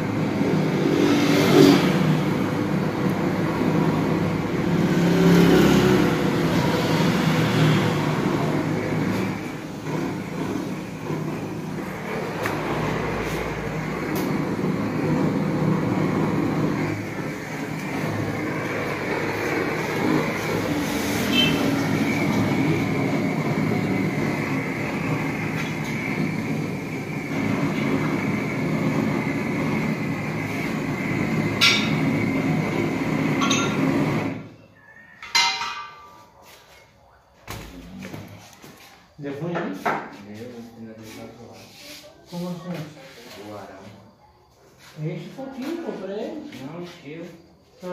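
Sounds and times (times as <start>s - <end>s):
gas torch rushing: 0.0s - 34.6s.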